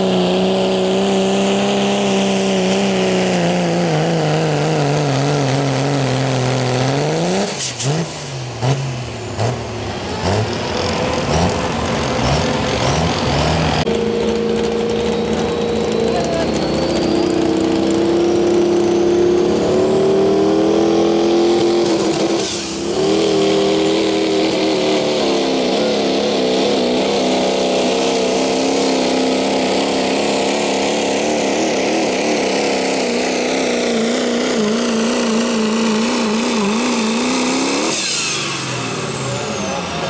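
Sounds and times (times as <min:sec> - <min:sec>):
diesel engine at full throttle: 0:00.0 - 0:40.0.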